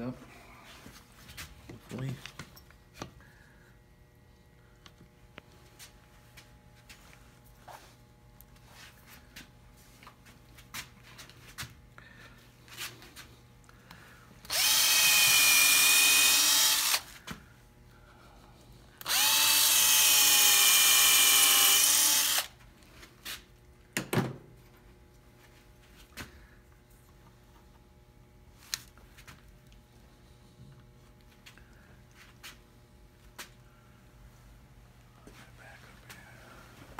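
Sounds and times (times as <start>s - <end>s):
drill whining: 14.4s - 17.2s, 19.0s - 22.6s.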